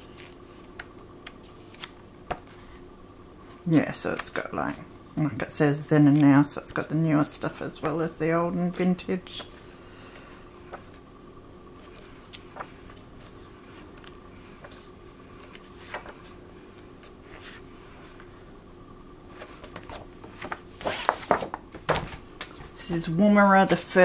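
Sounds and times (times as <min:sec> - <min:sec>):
book pages turning: 0:00.0 - 0:02.8, 0:05.9 - 0:06.5, 0:11.7 - 0:18.4, 0:19.3 - 0:22.7
faint steady hum: 0:00.0 - 0:24.0.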